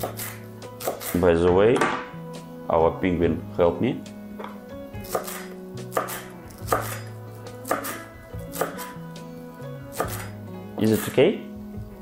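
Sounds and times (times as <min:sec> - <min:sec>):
knife chopping on wooden board: 0:00.0 - 0:01.2, 0:04.4 - 0:09.0, 0:09.9 - 0:10.3.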